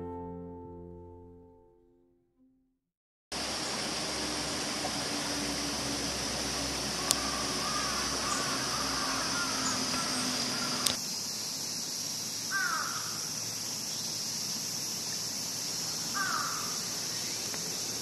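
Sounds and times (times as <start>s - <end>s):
steady high hiss: 3.4s - 18.0s
crow cawing: 7.0s - 11.0s, 12.5s - 13.3s, 16.1s - 16.9s.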